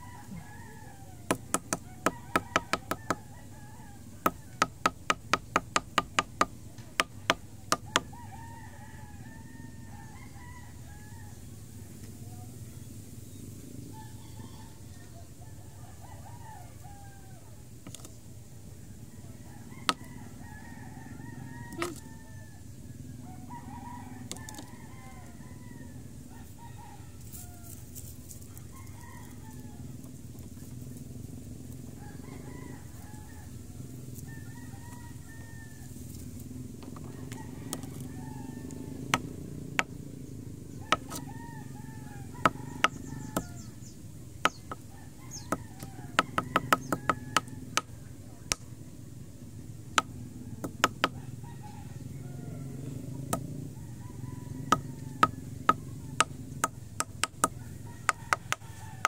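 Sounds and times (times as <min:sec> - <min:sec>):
low steady hum: 0:00.0 - 0:59.0
sharp taps on concrete: 0:01.3 - 0:03.2, 0:04.3 - 0:08.1.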